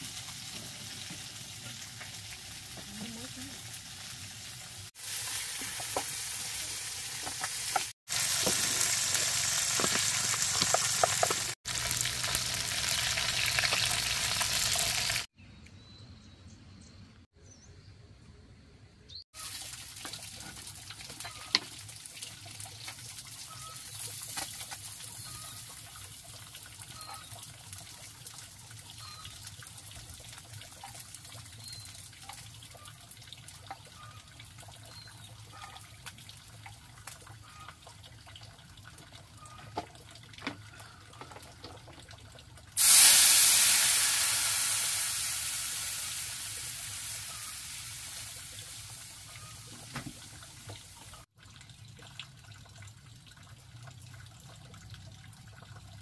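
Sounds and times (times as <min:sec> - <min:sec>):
water sizzling in hot pan: 0:00.0 - 0:15.3, 0:19.4 - 0:27.9, 0:42.8 - 0:51.3.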